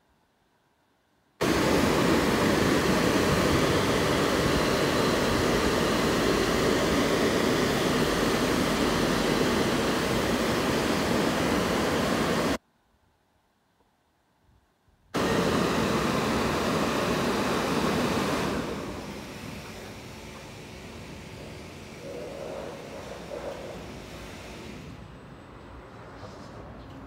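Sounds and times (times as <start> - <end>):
car wash spray rushing: 1.4 - 12.6, 15.2 - 25.0.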